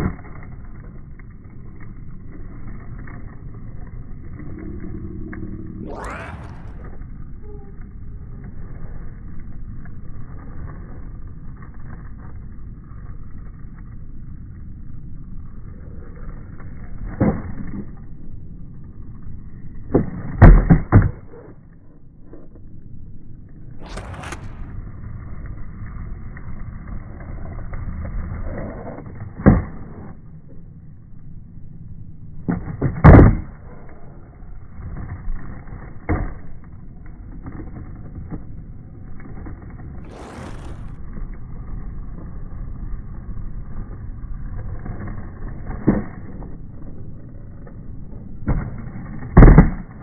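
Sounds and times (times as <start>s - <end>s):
skateboard wheels rumbling on concrete: 0.0s - 50.0s
skateboard tail pop: 19.9s - 21.5s, 32.5s - 33.6s, 48.4s - 50.0s.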